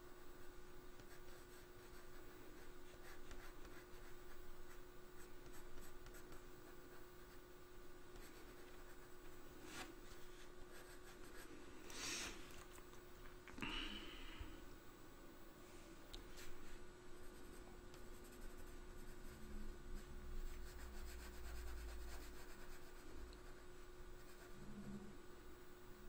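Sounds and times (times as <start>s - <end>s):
pencil scratching on paper: 1.0s - 7.4s, 9.8s - 11.5s, 17.2s - 23.6s, 24.2s - 24.6s.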